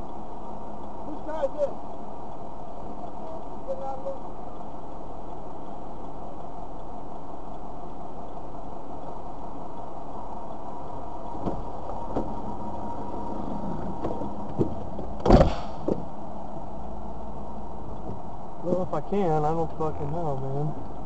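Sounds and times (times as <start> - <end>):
car engine idling: 0.0 - 21.0
car door shutting: 11.3 - 12.4, 13.5 - 16.1
light knocks: 11.4 - 12.4.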